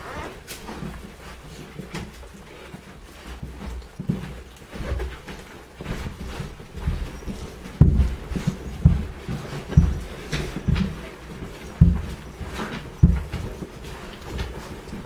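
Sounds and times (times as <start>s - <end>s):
rustling on bedding: 0.0s - 15.0s
soft low thumps: 5.9s - 15.0s.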